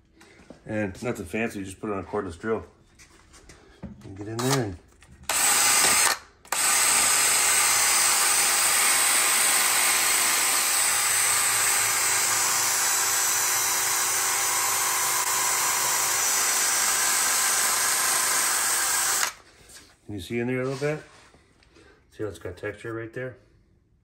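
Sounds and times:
cordless drill spinning brush: 5.3s - 19.8s.

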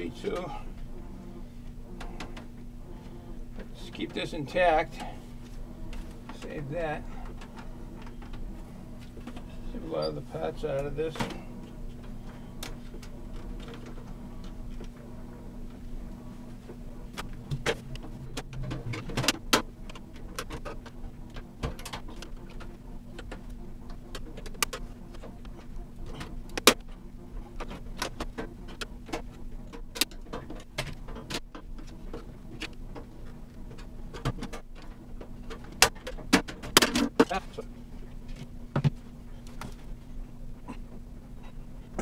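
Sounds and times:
steady low hum: 0.0s - 42.0s
computer parts clicking and clattering: 17.1s - 37.6s.

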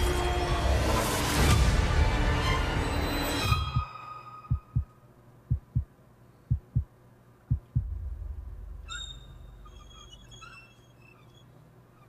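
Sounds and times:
low heartbeat: 4.5s - 4.9s, 5.5s - 5.9s, 6.5s - 6.9s, 7.5s - 8.9s
low rumble: 7.5s - 9.8s.

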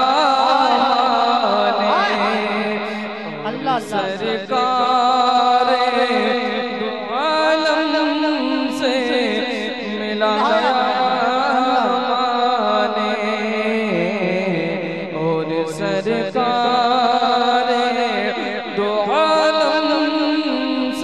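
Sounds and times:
man singing into a microphone: 0.0s - 21.0s.

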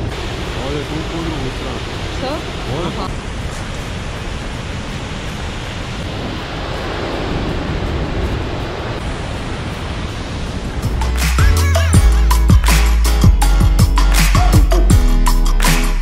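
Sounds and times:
waterfall rushing: 0.0s - 12.5s.

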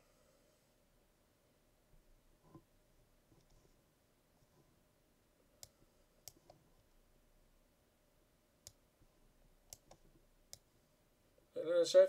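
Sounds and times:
computer mouse clicks: 5.6s - 6.9s, 9.7s - 10.7s.

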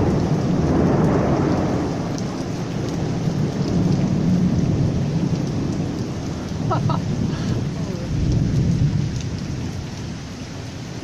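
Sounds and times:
thunder rolling: 0.0s - 9.8s
heavy rain pouring: 0.0s - 11.0s.

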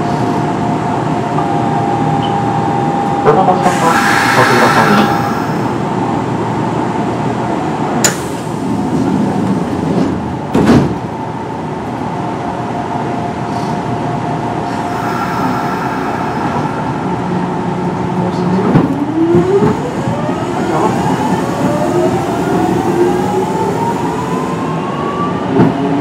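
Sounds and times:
train door closing thump: 10.0s - 11.1s.

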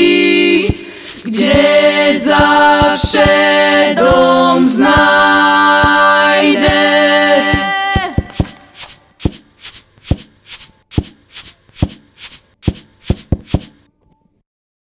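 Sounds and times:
voices holding a chord: 1.3s - 8.2s.

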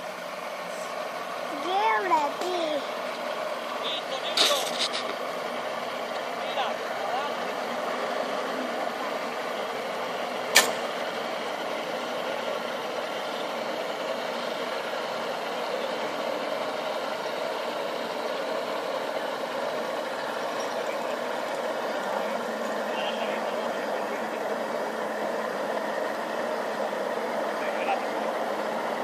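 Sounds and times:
outboard boat engine running: 5.2s - 29.0s
sharp click: 10.5s - 10.9s.

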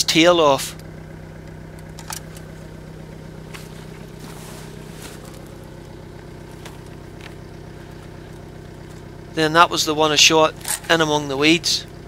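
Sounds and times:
engine idling: 0.0s - 12.0s
rustling in grass: 3.4s - 8.3s.

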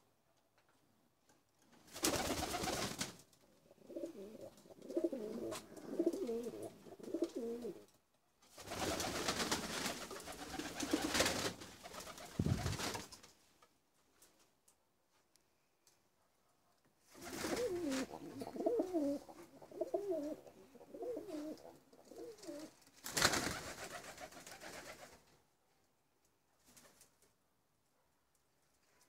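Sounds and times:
pigeons cooing: 3.7s - 7.8s, 17.4s - 22.7s
rustling noise: 9.4s - 16.0s.

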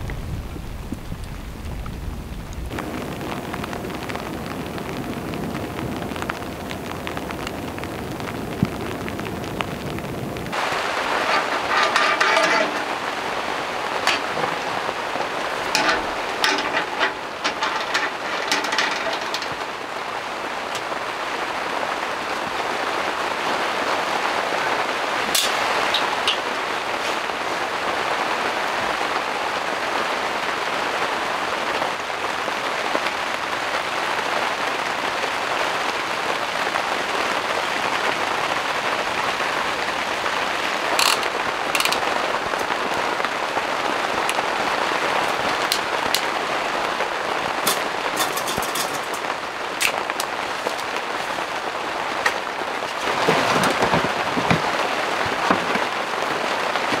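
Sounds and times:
rain pattering on tent fabric: 0.0s - 57.0s
steady rain: 0.0s - 57.0s
heater clicks and knocks: 10.5s - 13.1s, 14.0s - 14.8s, 15.6s - 19.8s, 20.7s - 21.0s, 41.0s - 42.7s, 47.6s - 51.0s, 52.2s - 57.0s.

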